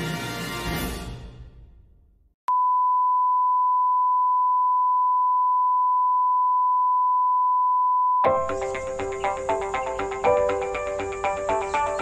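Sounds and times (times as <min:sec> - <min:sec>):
steady test tone beep: 0:02.5 - 0:08.3.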